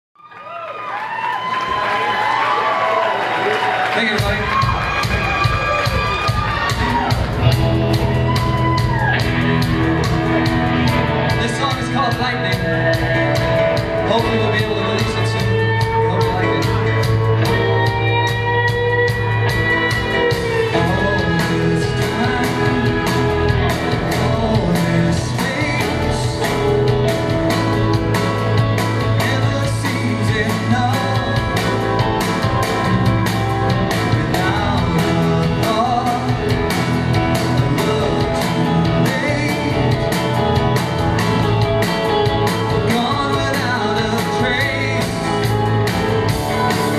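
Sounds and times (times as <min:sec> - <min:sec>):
rock band playing live: 0:01.5 - 0:46.9
person singing: 0:10.1 - 0:32.9, 0:33.7 - 0:46.9.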